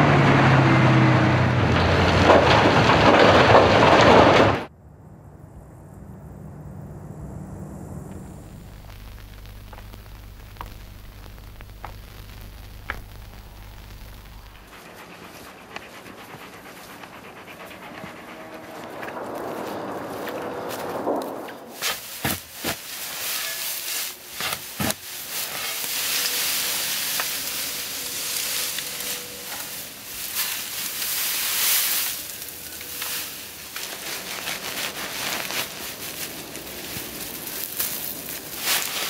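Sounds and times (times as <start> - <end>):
hay rustling and crackling: 8.6 - 15.5, 18.7 - 39.0.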